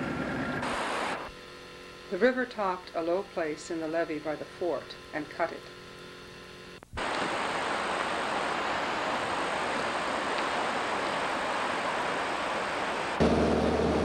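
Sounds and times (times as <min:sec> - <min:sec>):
water rushing: 0:07.0 - 0:13.5.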